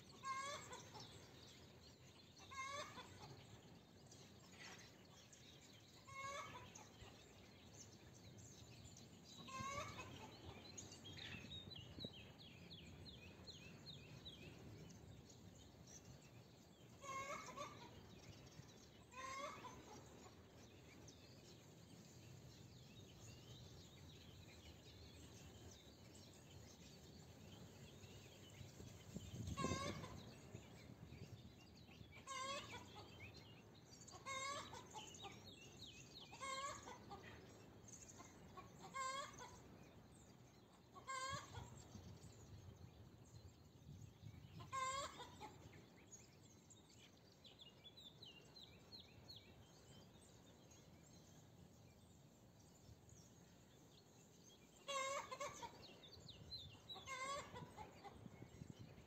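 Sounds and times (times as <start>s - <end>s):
faint bird chorus: 0.0s - 59.0s
hen clucking: 0.2s - 1.0s, 2.5s - 3.4s, 9.4s - 10.3s, 17.0s - 17.9s, 29.6s - 30.2s, 32.2s - 33.1s, 34.1s - 35.4s, 36.3s - 37.3s, 38.2s - 39.5s, 44.6s - 45.6s, 54.8s - 55.8s, 57.0s - 58.2s.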